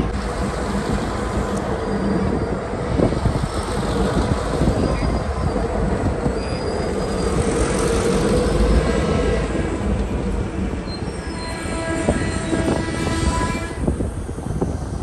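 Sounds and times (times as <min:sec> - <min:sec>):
diesel locomotives passing: 0:00.0 - 0:15.0
freight cars rolling on rails: 0:00.0 - 0:15.0
faint wheel squeal: 0:04.7 - 0:07.8, 0:10.8 - 0:12.8.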